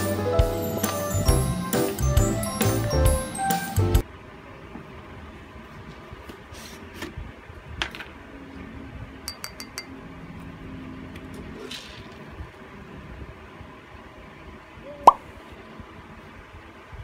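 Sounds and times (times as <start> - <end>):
plastic spoon clinking ceramic bowl: 9.3 - 9.9.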